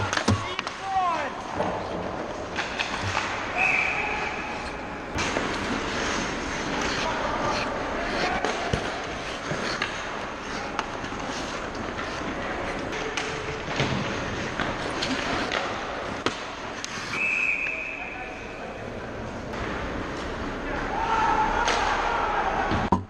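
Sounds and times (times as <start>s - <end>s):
sticks and puck knocking: 0.0s - 3.5s
skate blades scraping ice: 0.0s - 18.1s
players shouting: 20.7s - 22.9s.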